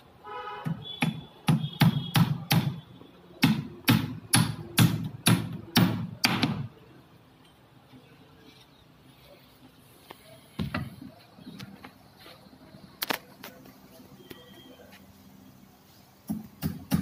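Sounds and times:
hammer striking wood: 0:00.6 - 0:02.8, 0:03.4 - 0:06.8, 0:16.2 - 0:17.0.

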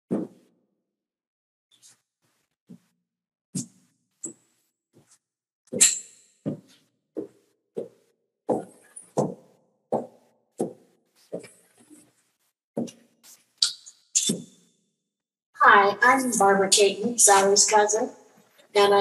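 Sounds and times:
footsteps on a hard floor: 0:00.1 - 0:00.4, 0:03.6 - 0:05.2, 0:06.5 - 0:13.5.

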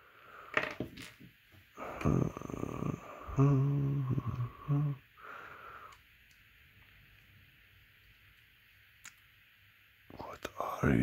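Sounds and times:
low growling hum: 0:01.8 - 0:06.0
person humming: 0:01.8 - 0:06.0.

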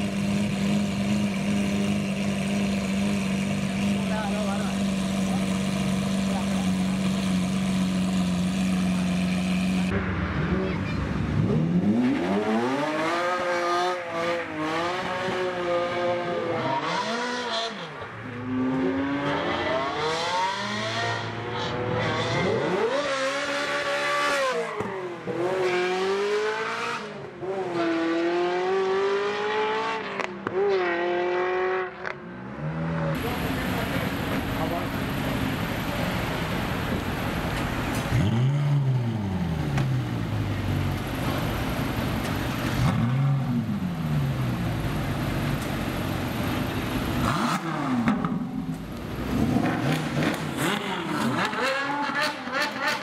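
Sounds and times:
sports cars accelerating past: 0:09.2 - 0:33.2.

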